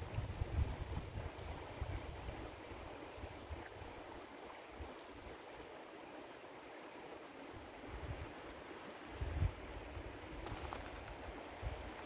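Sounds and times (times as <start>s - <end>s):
wind buffeting microphone: 0.0s - 2.4s, 9.2s - 12.0s
water rushing over stones: 10.4s - 12.0s.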